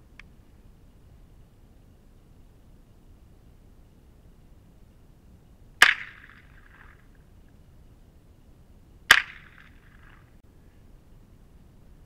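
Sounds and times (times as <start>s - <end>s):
suppressed handgun shots: 5.8s - 6.4s, 9.1s - 9.7s
rolling echo: 5.8s - 7.2s, 9.1s - 10.4s.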